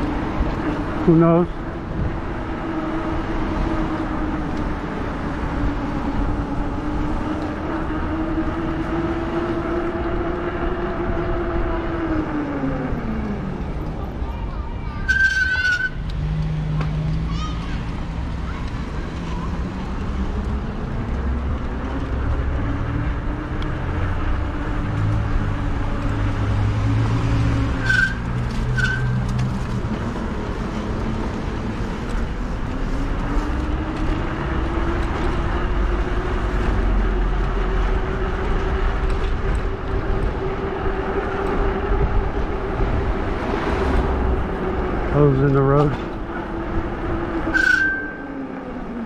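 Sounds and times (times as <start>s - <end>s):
electric hub motor whining: 0.0s - 14.2s, 19.2s - 49.0s
wind and tyre rumble: 0.0s - 49.0s.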